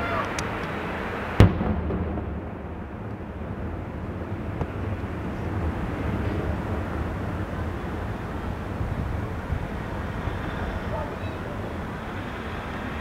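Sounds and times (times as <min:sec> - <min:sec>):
low background rumble: 0:00.0 - 0:13.0
distant pops: 0:00.2 - 0:05.2
firework bang: 0:01.4 - 0:05.0.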